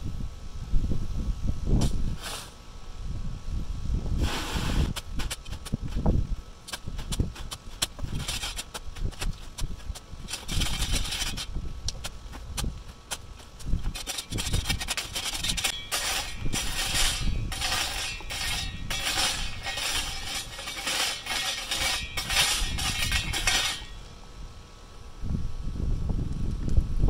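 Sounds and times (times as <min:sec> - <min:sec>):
shovel scraping rocks on wire mesh: 0:04.2 - 0:24.1.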